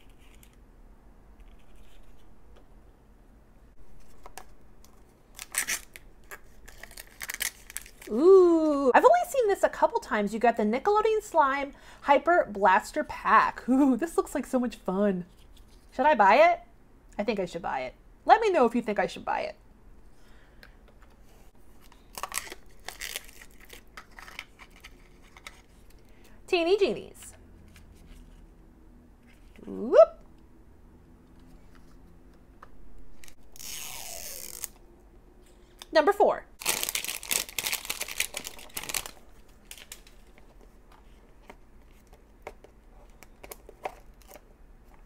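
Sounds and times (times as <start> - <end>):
wrappers tearing and crinkling: 5.3 - 8.2, 21.9 - 25.7, 33.2 - 34.8, 36.6 - 40.4.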